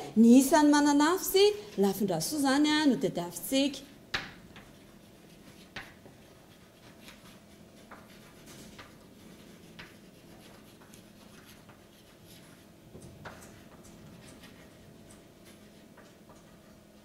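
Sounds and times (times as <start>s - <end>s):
chalk scratching on blackboard: 4.5s - 16.6s.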